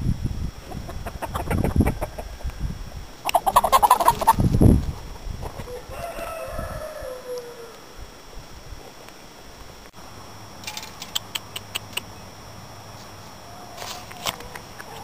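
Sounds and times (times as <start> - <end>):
chickens clucking: 0.7 - 2.5, 3.2 - 4.5.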